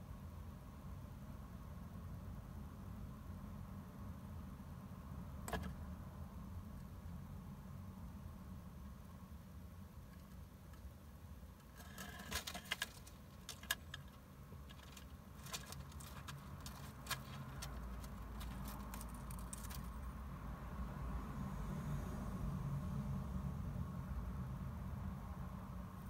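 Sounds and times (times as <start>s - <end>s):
low steady hum: 0.0s - 26.0s
hamster scrabbling through paper: 11.7s - 19.9s.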